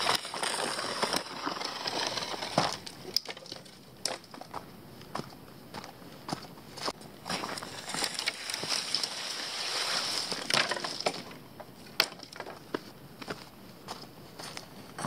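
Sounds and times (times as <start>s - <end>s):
branch dragged over ground: 0.0s - 4.2s, 7.3s - 11.4s
footsteps crunching on leaf litter: 6.3s - 11.0s.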